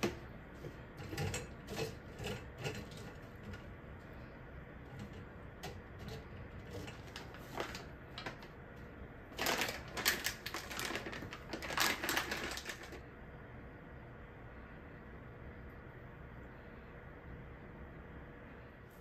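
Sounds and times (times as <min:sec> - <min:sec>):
plastic pouch crinkling: 0:06.1 - 0:08.6, 0:09.3 - 0:13.0.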